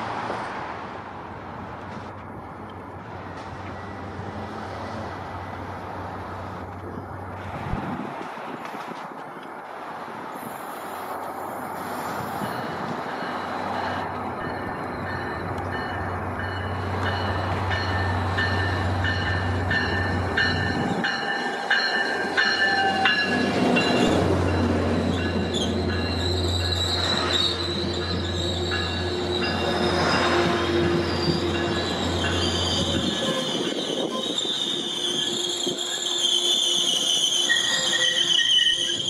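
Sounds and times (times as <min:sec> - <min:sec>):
diesel locomotive engine humming: 0:09.2 - 0:39.0
train wheels squealing: 0:11.8 - 0:39.0.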